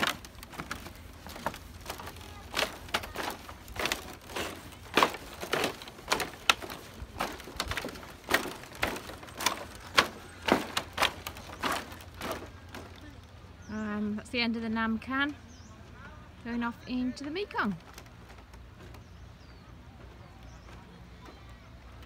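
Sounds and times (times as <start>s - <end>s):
footsteps on bamboo footbridge: 0.0s - 15.9s, 16.5s - 22.0s.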